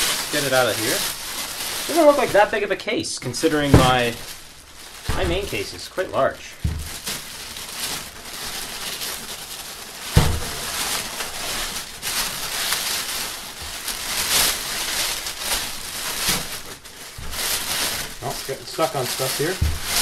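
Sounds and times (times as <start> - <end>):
plastic bag rustling: 0.0 - 20.0
thump: 3.7 - 4.0, 6.6 - 7.0, 10.2 - 10.6, 19.6 - 20.0.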